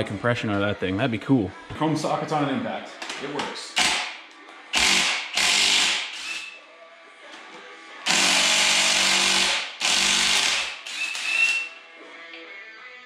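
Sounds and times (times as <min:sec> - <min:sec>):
impact wrench hammering: 0:03.8 - 0:04.2, 0:04.8 - 0:06.5, 0:08.1 - 0:11.7.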